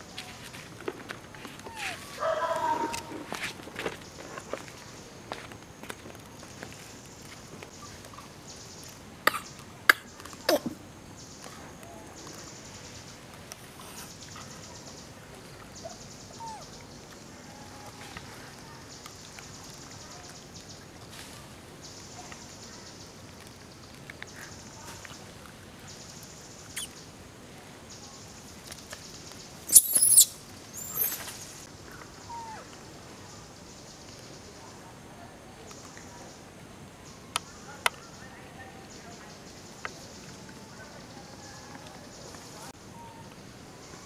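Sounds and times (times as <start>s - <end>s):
monkeys squealing: 1.7s - 2.1s, 29.7s - 31.2s
faint chirps: 6.4s - 27.2s, 27.9s - 34.9s.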